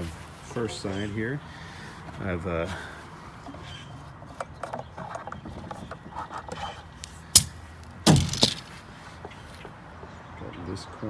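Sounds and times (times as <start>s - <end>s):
wooden board clicks and rubbing: 3.5s - 9.8s.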